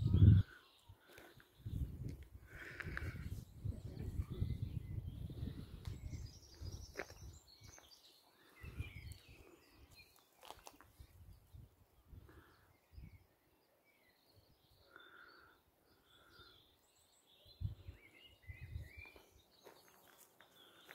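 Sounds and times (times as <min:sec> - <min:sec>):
birds chirping: 0:00.0 - 0:20.9.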